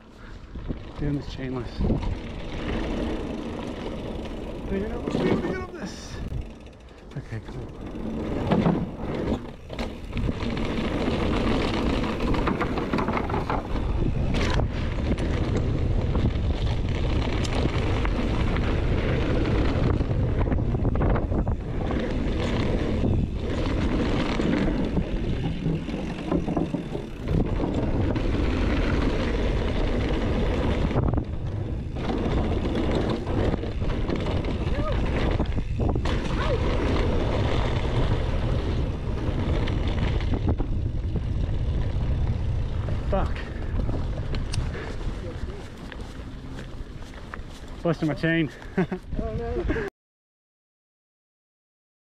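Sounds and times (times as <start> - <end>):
wind over microphone: 0.0 - 3.0, 8.6 - 49.9
tyres rumbling on wooden boardwalk: 0.2 - 49.9
bike knocking over bumps: 7.9 - 18.7, 22.1 - 38.8.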